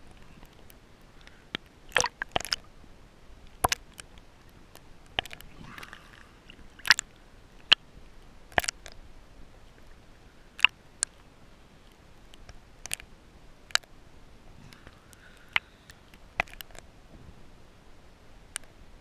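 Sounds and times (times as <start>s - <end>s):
sharp underwater clicks: 0.0s - 2.7s, 3.4s - 7.8s, 8.5s - 9.0s, 9.7s - 13.9s, 14.7s - 16.9s, 18.5s - 18.8s
faint underwater hiss: 0.0s - 19.0s.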